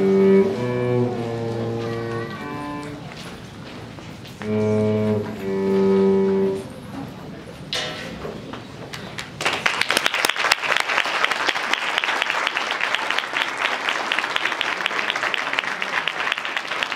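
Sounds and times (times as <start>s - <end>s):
audience applause: 9.0s - 16.9s.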